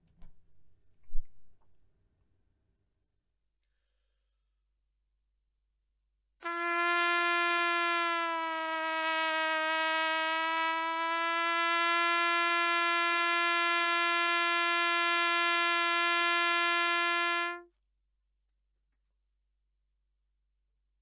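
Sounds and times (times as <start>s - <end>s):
trumpet long held note: 6.4s - 17.7s.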